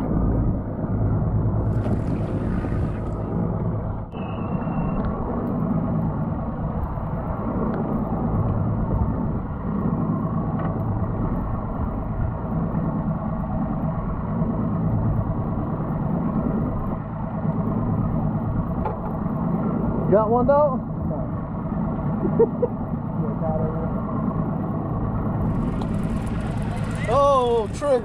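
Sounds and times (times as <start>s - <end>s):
outboard motor idling: 25.3s - 28.0s.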